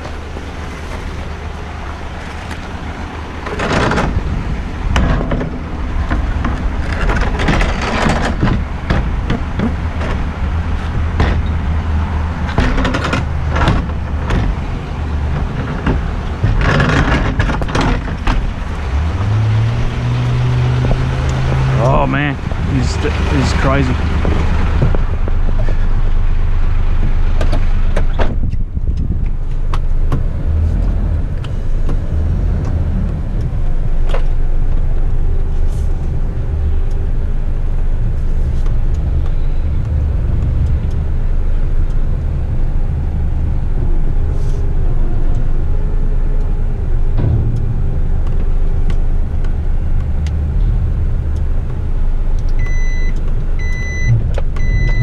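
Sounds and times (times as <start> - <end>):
diesel engine rumbling: 0.0 - 55.0
repeated beeping: 52.6 - 55.0.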